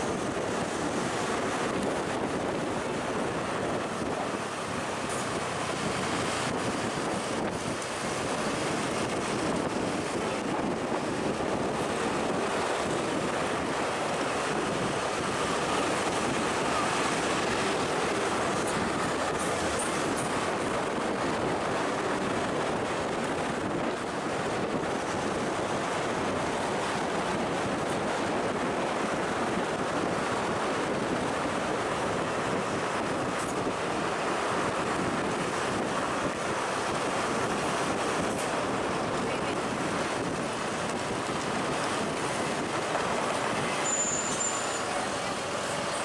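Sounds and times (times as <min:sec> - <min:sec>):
heavy vehicle running: 0:00.0 - 0:46.0
wind buffeting microphone: 0:00.0 - 0:46.0.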